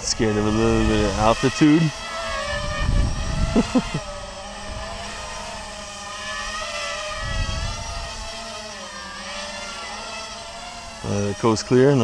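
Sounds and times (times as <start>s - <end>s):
quadcopter propellers whining: 0.0s - 12.0s.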